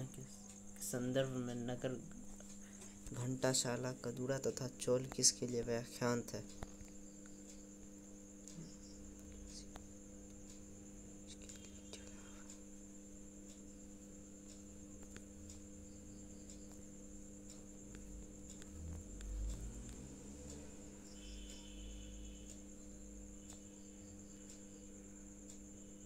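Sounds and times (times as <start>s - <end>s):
electrical mains hum: 0.0s - 26.0s
faint clicks: 11.2s - 12.7s, 14.4s - 15.7s, 16.4s - 24.8s.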